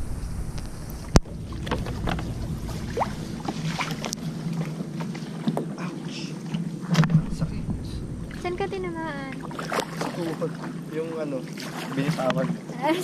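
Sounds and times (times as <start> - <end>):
knocks and scraping against hull: 0.0 - 5.8, 6.5 - 10.8, 11.5 - 12.7
paddle splashes: 0.9 - 7.3, 9.2 - 12.9.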